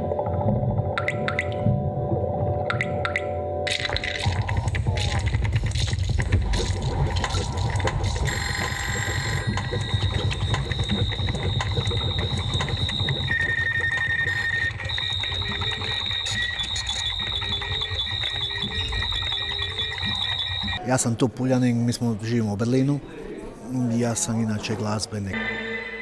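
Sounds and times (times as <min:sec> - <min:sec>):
high-pitched sustained tones: 0:08.2 - 0:20.8, 0:25.4 - 0:26.0.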